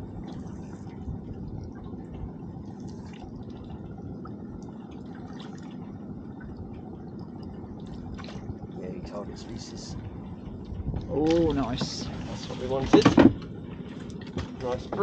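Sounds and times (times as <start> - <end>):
water drips: 0.0 - 8.8
steady low rumble: 0.0 - 15.0
water lapping against boat: 0.0 - 15.0.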